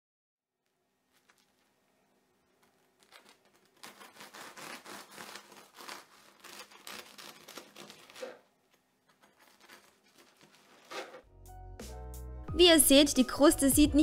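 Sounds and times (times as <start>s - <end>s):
bread knife sawing crisp crust: 3.1s - 8.4s.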